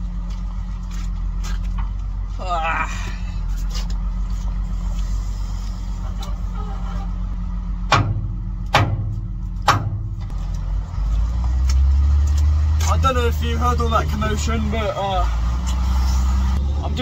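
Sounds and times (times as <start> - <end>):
heavy machinery engine hum: 0.0 - 17.0
loud metal clanks: 7.8 - 10.4.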